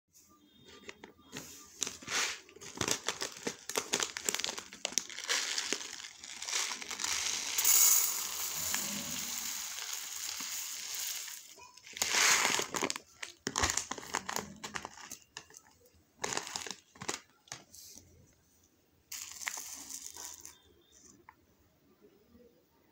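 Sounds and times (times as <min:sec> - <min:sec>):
plastic bag crinkling: 0:01.8 - 0:17.7, 0:19.1 - 0:20.8
rice pouring onto steel plate: 0:04.7 - 0:12.8, 0:19.1 - 0:20.6.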